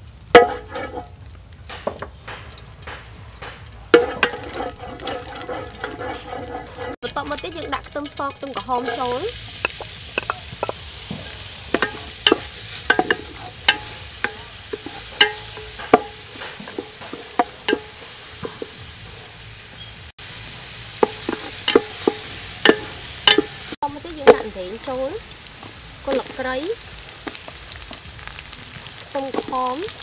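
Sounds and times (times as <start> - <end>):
shallots sizzling in hot oil: 0.0 - 30.0
wooden spoon knocking against pot: 1.7 - 6.9, 8.5 - 18.8, 21.0 - 23.6.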